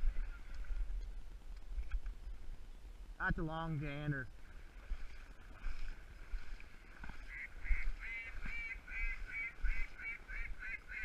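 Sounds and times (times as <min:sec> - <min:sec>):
goose honking: 0:07.2 - 0:11.0.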